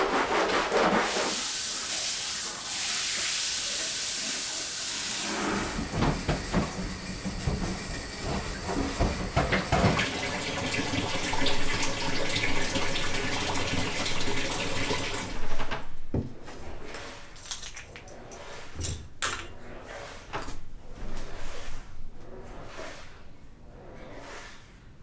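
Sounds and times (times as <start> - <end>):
running water: 1.1 - 15.6
knocks and clatter: 5.8 - 10.1.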